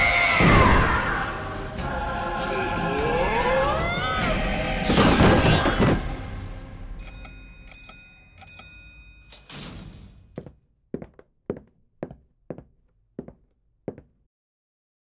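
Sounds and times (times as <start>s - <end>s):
elevator dial ticking: 7.0s - 9.3s
elevator chime ringing: 7.0s - 9.5s.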